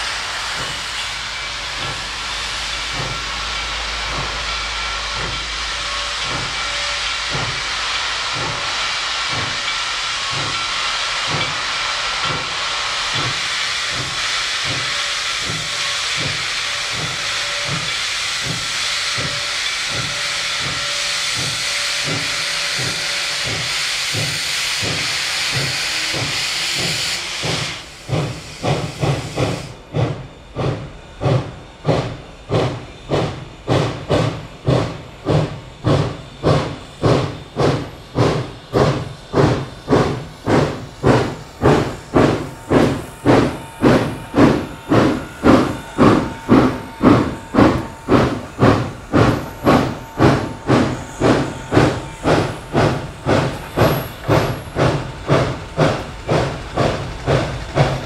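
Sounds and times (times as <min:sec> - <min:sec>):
steam hissing: 0:00.0 - 0:58.0
steam locomotive exhaust chuffs: 0:00.0 - 0:58.0.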